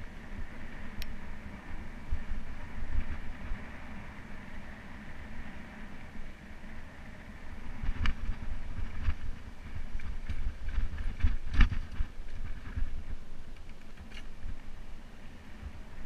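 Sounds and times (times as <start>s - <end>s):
wind on microphone: 0.0s - 16.0s
bike rattling over rocks: 7.6s - 14.7s.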